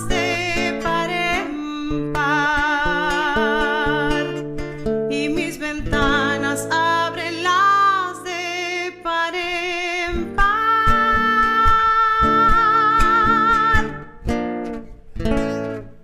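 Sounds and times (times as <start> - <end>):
woman singing with vibrato: 0.0 - 14.3
strummed acoustic guitar: 0.0 - 16.0.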